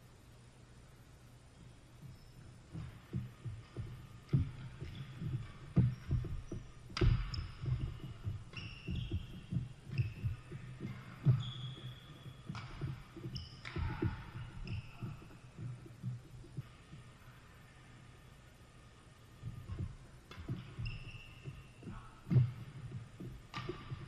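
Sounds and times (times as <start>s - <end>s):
footsteps on court: 2.0s - 16.7s
sneakers squeaking: 2.0s - 17.8s, 19.4s - 24.0s
racket striking shuttlecock: 7.0s - 7.4s.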